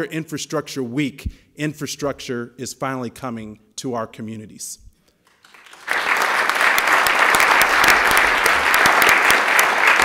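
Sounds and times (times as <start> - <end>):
audience applauding: 5.3 - 10.0.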